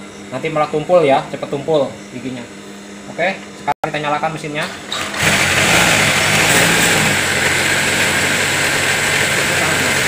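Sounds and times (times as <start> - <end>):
sewing machine running: 4.6 - 10.0.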